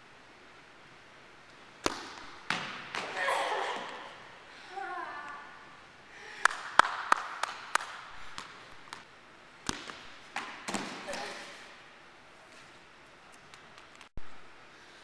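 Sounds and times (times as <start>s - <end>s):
ball bouncing on gym floor: 1.8s - 3.2s, 9.6s - 11.4s.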